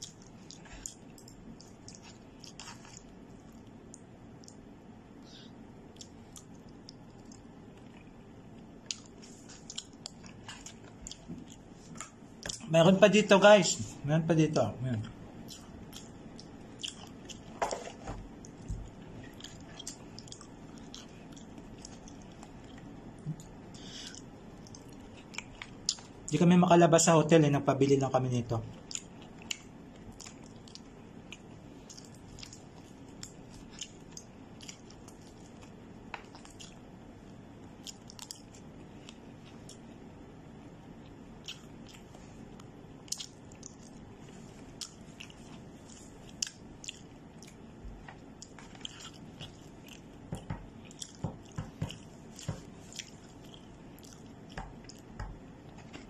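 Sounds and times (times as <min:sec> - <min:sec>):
chewing and biting: 0:00.0 - 0:04.7, 0:05.9 - 0:12.7, 0:15.4 - 0:26.3, 0:28.8 - 0:36.9, 0:37.7 - 0:40.0, 0:41.0 - 0:56.0
food crunching: 0:00.0 - 0:04.7, 0:05.9 - 0:12.7, 0:15.0 - 0:26.4, 0:28.7 - 0:40.0, 0:41.0 - 0:56.0
steady low hum: 0:00.0 - 0:56.0.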